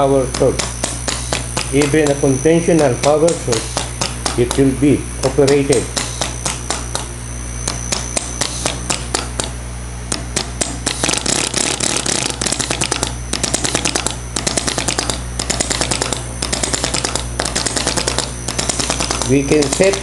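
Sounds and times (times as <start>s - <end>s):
actuators clicking: 0.0s - 20.0s
steady low hum: 0.0s - 20.0s.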